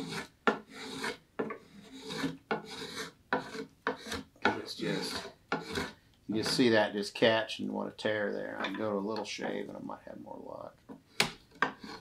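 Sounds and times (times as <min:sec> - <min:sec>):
knife scraping wood: 0:00.0 - 0:06.7, 0:11.0 - 0:12.0.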